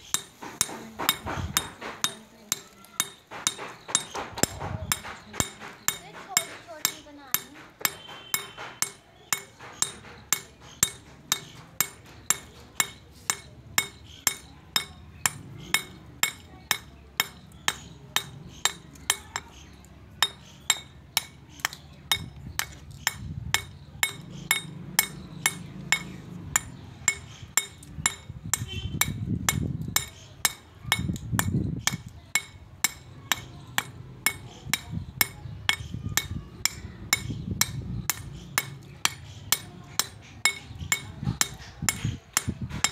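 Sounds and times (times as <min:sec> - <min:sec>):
hammer pecking stone: 0:00.0 - 0:42.9.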